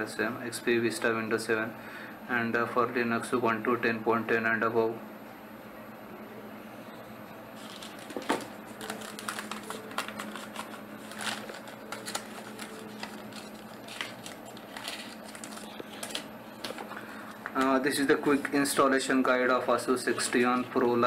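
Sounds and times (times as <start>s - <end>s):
paper rustling: 7.6s - 18.9s.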